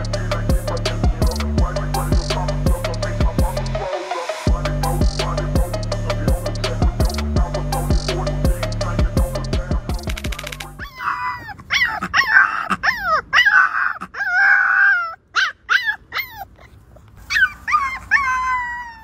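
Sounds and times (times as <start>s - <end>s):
puppy howling: 10.8s - 16.7s, 17.3s - 19.0s.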